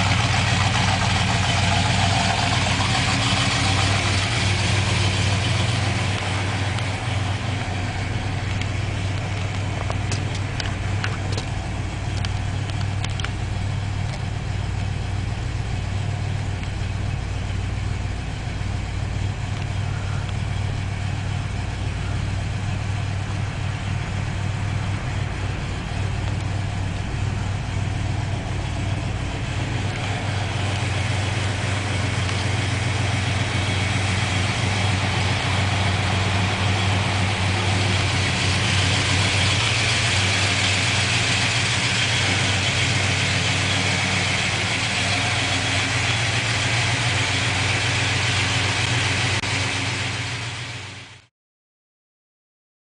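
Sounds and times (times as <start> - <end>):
engine idling: 0.0 - 51.3.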